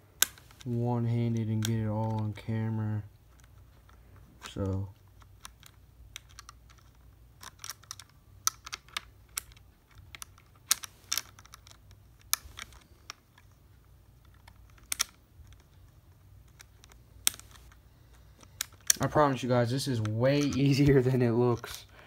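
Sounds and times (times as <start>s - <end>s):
screw clicking on plastic helmet: 3.3s - 13.6s, 14.2s - 19.0s.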